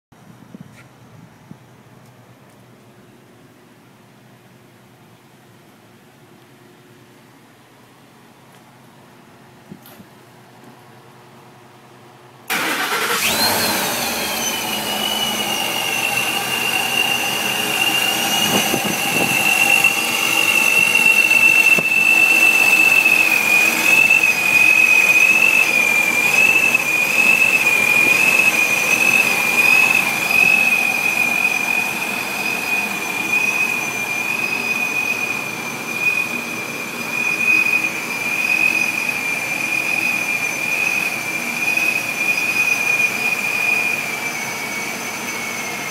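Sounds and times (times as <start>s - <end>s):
supercharger whine: 12.4s - 45.9s
engine running: 12.5s - 45.9s.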